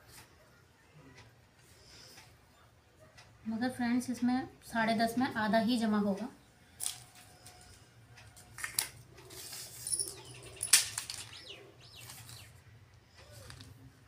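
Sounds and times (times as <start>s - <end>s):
tape measure being laid out: 8.6s - 11.4s
bird calling: 10.0s - 13.6s.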